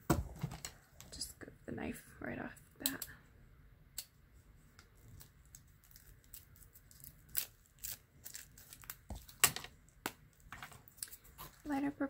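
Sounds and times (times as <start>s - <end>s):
plastic wrap crinkling and scraping: 4.9s - 12.0s
plastic wrap ripping: 5.0s - 9.6s.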